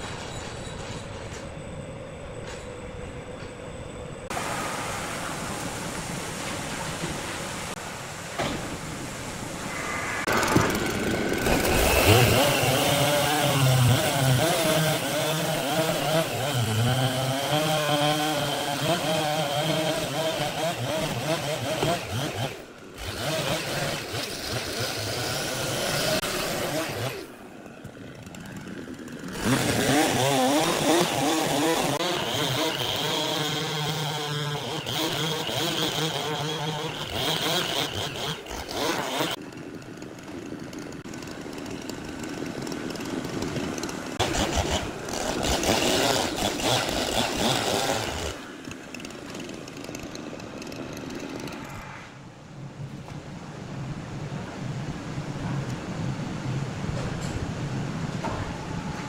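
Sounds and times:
chainsaw cutting wood: 0:09.8 - 0:51.7.

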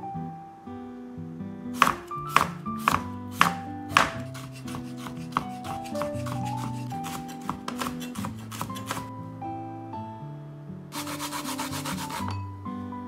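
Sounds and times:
knife chopping on wooden board: 0:01.8 - 0:09.1, 0:11.0 - 0:12.4.

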